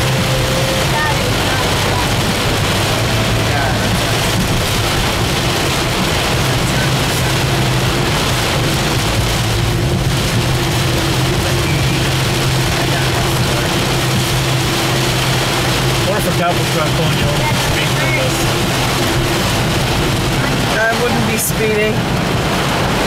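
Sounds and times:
engine and tyre hum: 0:00.0 - 0:23.0
heavy rain on car roof: 0:00.0 - 0:23.0.

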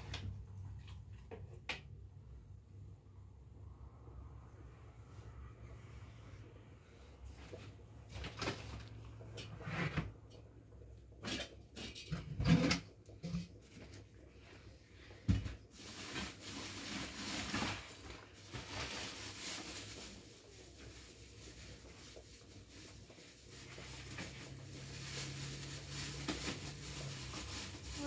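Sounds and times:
hands working dough in bucket: 0:07.2 - 0:28.0.

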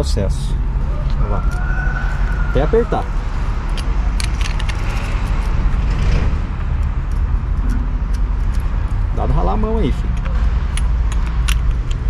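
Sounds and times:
steady low rumble: 0:00.0 - 0:12.0
metallic clicks of wrench: 0:03.7 - 0:05.6, 0:10.0 - 0:12.0.

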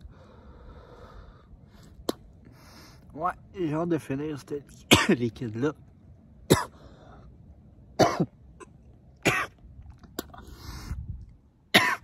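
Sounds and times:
drawn-out breath: 0:00.0 - 0:03.1, 0:06.7 - 0:07.4, 0:10.4 - 0:11.1
man coughing: 0:04.9 - 0:05.2, 0:06.5 - 0:06.8, 0:08.0 - 0:08.3, 0:11.8 - 0:12.0.

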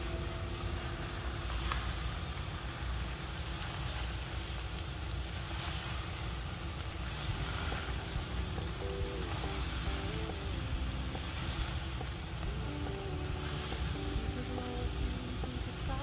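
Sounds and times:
low rumble: 0:06.1 - 0:16.0.

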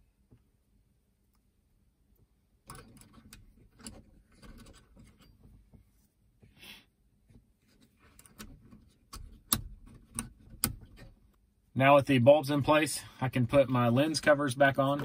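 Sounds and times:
faint clicks and rubbing: 0:02.6 - 0:06.5, 0:07.2 - 0:11.4.

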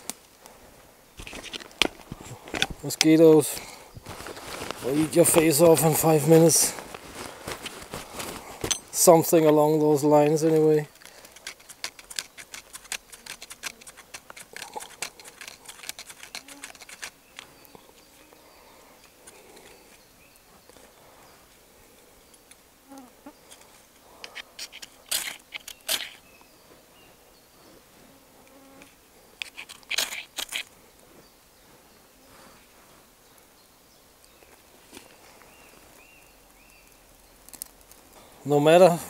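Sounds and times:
knife scraping tinder: 0:10.2 - 0:17.6, 0:23.5 - 0:26.2, 0:29.4 - 0:30.7.

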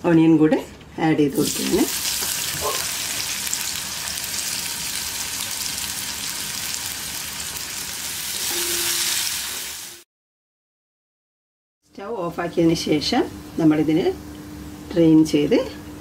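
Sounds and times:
onions sizzling in hot fat: 0:01.4 - 0:10.0.

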